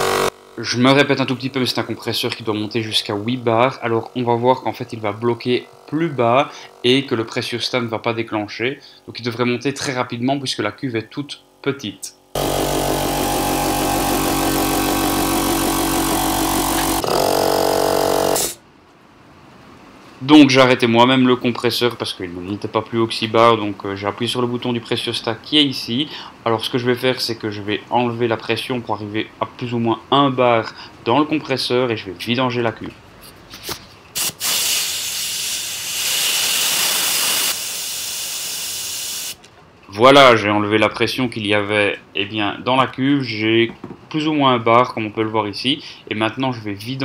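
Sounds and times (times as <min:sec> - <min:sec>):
piston air compressor running: 0:00.0 - 0:01.6, 0:05.7 - 0:07.1, 0:12.4 - 0:18.6, 0:34.2 - 0:39.4
compressed air hissing: 0:34.2 - 0:39.4.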